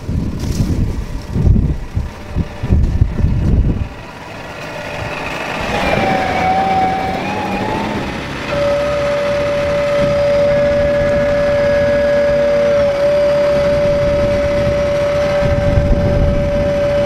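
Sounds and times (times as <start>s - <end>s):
steady whining tone: 0.0s - 17.0s
tractors running: 0.0s - 17.0s
wind buffeting microphone: 0.0s - 17.0s
second steady tone: 8.5s - 17.0s.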